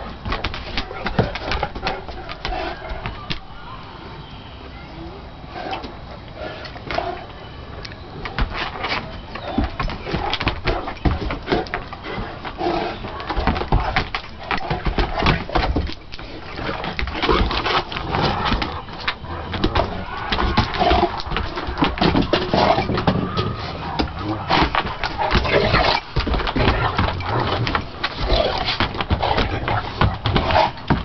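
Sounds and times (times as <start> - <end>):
paws scraping on wooden boards: 0.0 - 3.4, 5.5 - 31.0
dogs growling and grunting: 0.7 - 3.2, 9.4 - 31.0.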